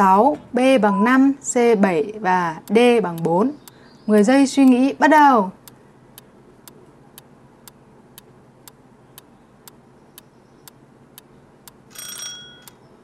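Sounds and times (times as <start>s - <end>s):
clock ticking: 2.6s - 4.8s.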